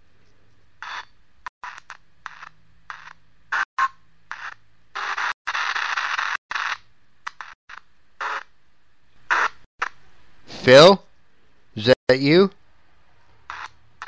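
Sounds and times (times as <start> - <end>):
choppy radio static bursts: 4.3 - 8.5, 9.3 - 10.0, 13.5 - 13.8.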